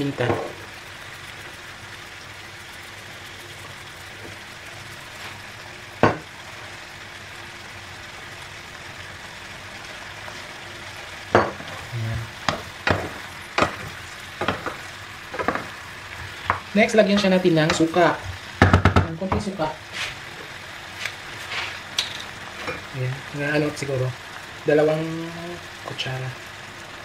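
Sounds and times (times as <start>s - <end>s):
vegetables sizzling in a pan: 0.0s - 27.0s
knock on a pan: 0.2s - 0.6s, 6.0s - 6.3s, 11.3s - 11.7s, 12.4s - 15.7s, 18.6s - 19.5s
wooden spoon scraping a pan: 19.9s - 22.9s.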